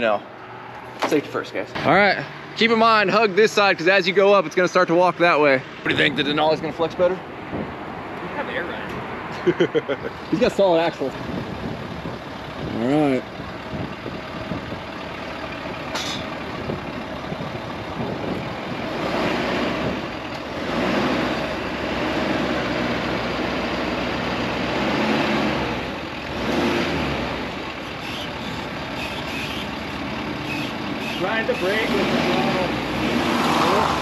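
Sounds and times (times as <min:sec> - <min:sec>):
truck engine revving under load: 0:09.8 - 0:34.0.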